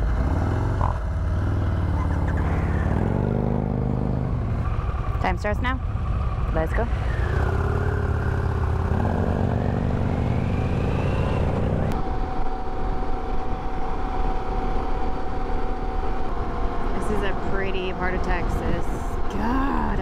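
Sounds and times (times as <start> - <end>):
motorcycle engine accelerating: 0.0 - 13.8.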